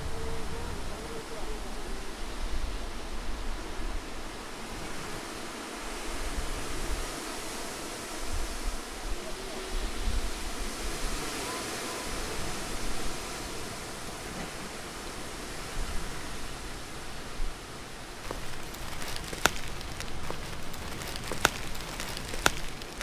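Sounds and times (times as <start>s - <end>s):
steady outdoor hiss: 0.0s - 23.0s
wind rumbling on microphone: 0.0s - 23.0s.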